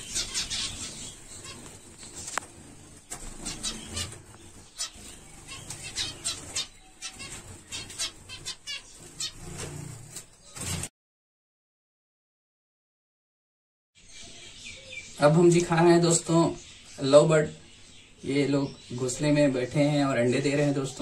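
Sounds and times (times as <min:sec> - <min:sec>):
finches chirping: 0:00.0 - 0:10.6, 0:14.0 - 0:21.0
wings fluttering: 0:00.0 - 0:10.9.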